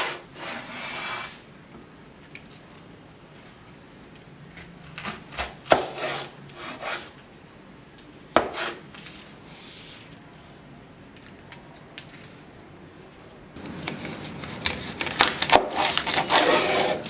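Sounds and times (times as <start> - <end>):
cleaver cutting vegetable stalks: 13.6 - 17.0.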